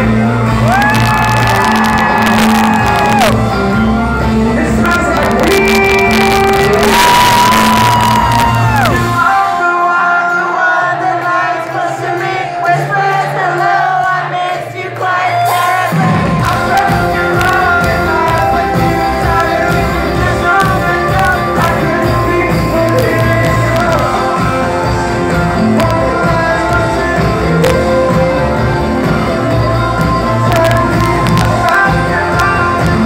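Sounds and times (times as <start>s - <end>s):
person singing: 0.0s - 3.5s, 4.2s - 33.0s
pop-rock band playing: 0.0s - 33.0s.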